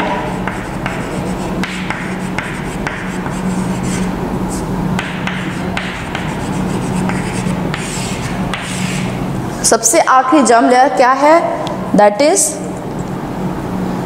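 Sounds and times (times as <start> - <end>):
chalk scratching on chalkboard: 0.0 - 9.2.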